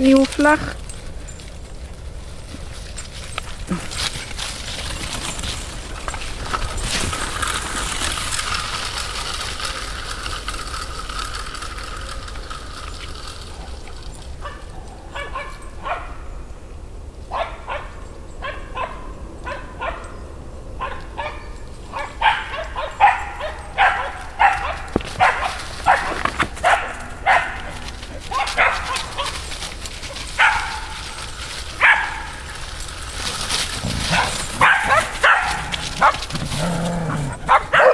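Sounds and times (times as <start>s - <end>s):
dog barking in yips: 22.0s - 29.4s, 30.4s - 31.0s, 31.8s - 32.3s, 34.1s - 36.2s, 37.5s - 37.9s.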